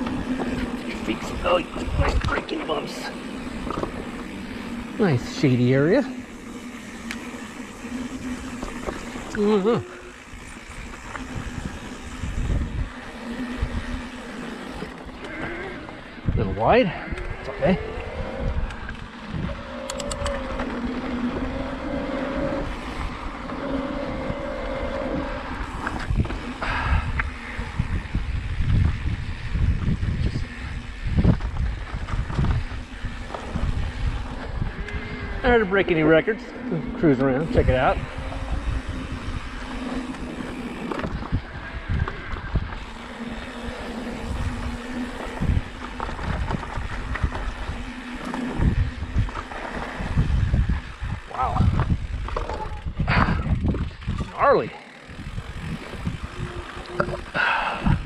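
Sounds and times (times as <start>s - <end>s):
electric bike motor whine: 0.0s - 58.0s
rumble of tyres and air: 0.0s - 58.0s
wind buffeting the microphone: 10.2s - 14.2s, 15.7s - 21.8s, 24.0s - 36.0s, 37.4s - 58.0s
quick clicks: 19.8s - 20.5s.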